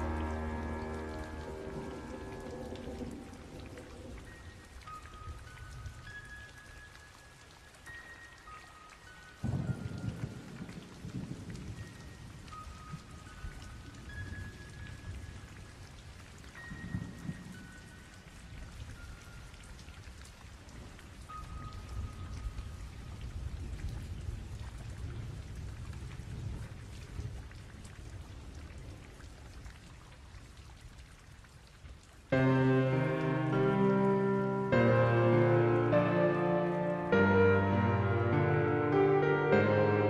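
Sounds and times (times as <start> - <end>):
low rolling thunder: 0.0 - 4.5, 9.4 - 12.5
faint high held notes: 0.0 - 5.5
steady rain: 0.0 - 40.0.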